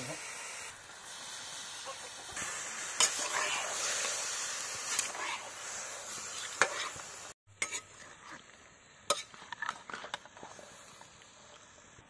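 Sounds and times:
soft sizzle: 0.0s - 12.0s
ladle clinking and scraping wok: 2.9s - 3.8s, 6.3s - 7.0s, 7.6s - 8.4s, 9.1s - 10.6s.

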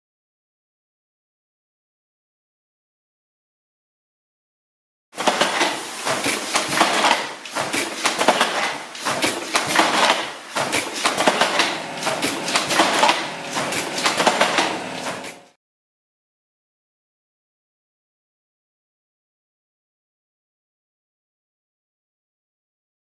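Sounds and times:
handloom wooden clatter: 5.2s - 15.6s.

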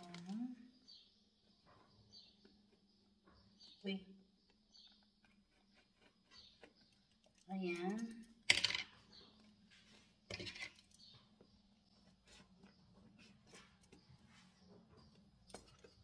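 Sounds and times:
scissors cutting cardboard: 5.2s - 7.1s.

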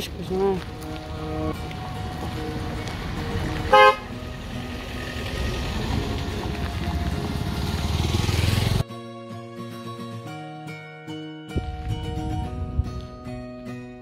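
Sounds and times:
motorcycle engine approaching: 0.6s - 8.8s
vehicle horn toot: 3.7s - 4.2s.

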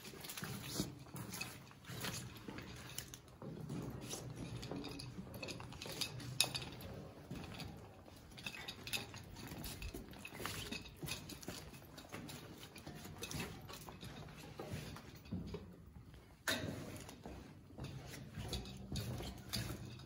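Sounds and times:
footsteps on metal grating: 0.0s - 20.0s
light metallic clinks: 0.1s - 20.0s.

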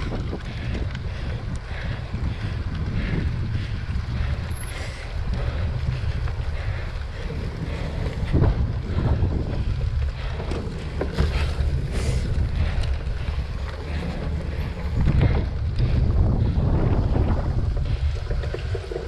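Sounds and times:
wind buffeting microphone: 0.0s - 19.0s
bike knocks and rattles: 7.7s - 19.0s.

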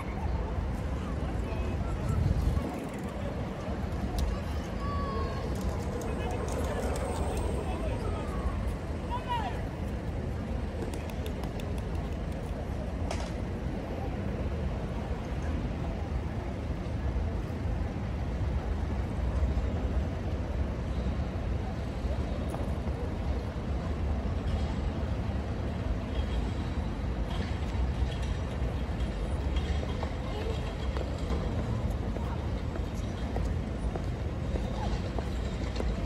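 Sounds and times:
wind buffeting microphone: 0.0s - 9.0s
distant voices of passers-by: 0.0s - 36.0s.

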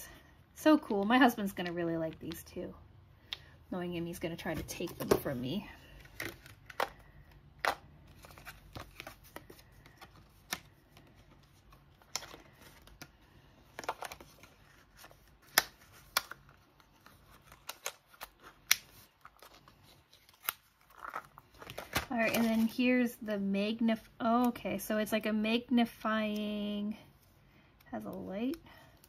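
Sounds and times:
plastic packaging handled: 4.6s - 22.8s.

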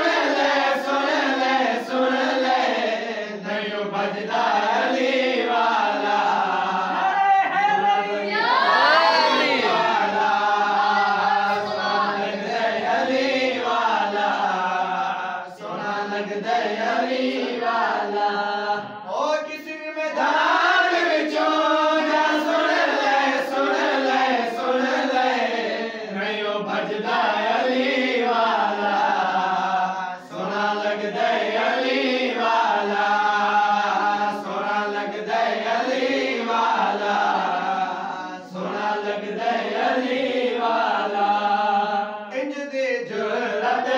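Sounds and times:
men chanting unaccompanied: 0.0s - 43.9s.

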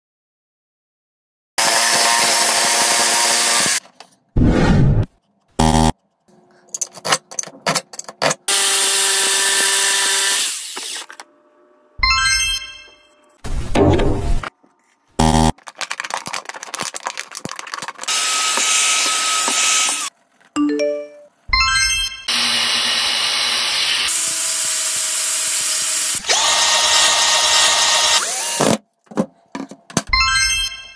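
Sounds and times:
angle grinder cutting plastic pipe: 1.6s - 3.8s, 8.3s - 11.2s, 17.9s - 20.1s, 22.3s - 28.8s
jigsaw sawing wood: 1.6s - 3.8s, 8.4s - 11.0s, 18.0s - 20.1s, 22.3s - 28.8s
tool handling clicks: 6.7s - 8.5s.

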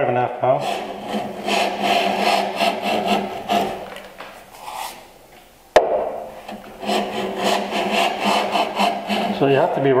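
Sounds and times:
plane shaving end grain: 0.6s - 5.1s, 6.4s - 9.9s
sharp knock: 5.8s - 6.3s.

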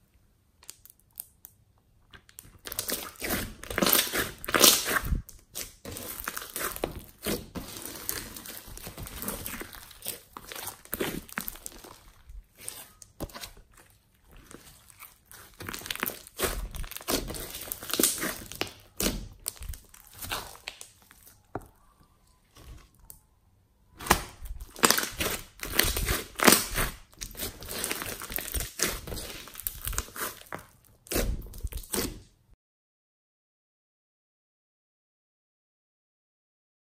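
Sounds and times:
slime squished by hand: 2.1s - 23.2s, 23.9s - 32.3s.

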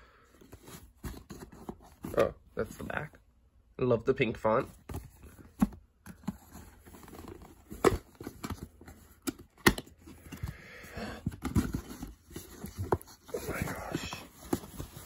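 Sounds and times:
cardboard knocks and scrapes: 4.7s - 10.4s, 11.2s - 15.0s.

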